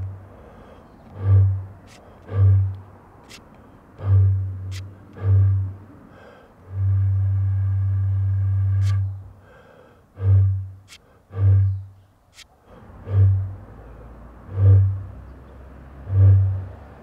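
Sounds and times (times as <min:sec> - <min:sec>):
blown gourd droning: 0:00.0 - 0:03.4, 0:04.0 - 0:12.0, 0:12.7 - 0:15.3, 0:16.0 - 0:17.0
sharp clicks: 0:01.0 - 0:04.1, 0:04.7 - 0:05.2, 0:10.8 - 0:11.1, 0:12.3 - 0:12.6.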